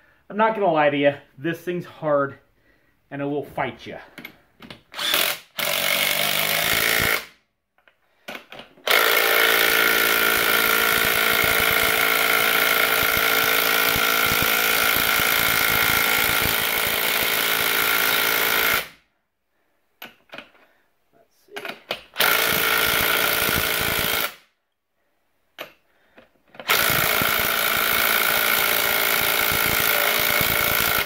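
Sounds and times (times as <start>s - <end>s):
impact wrench hammering: 4.2s - 7.3s, 8.3s - 19.0s, 21.6s - 24.4s, 26.6s - 31.0s.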